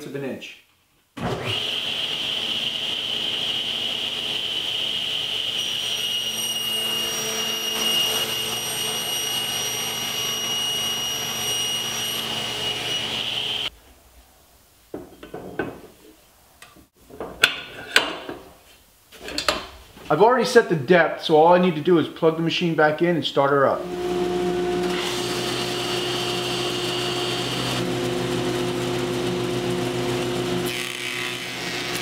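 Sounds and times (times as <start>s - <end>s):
table saw whining: 1.2s - 13.7s, 23.8s - 32.0s.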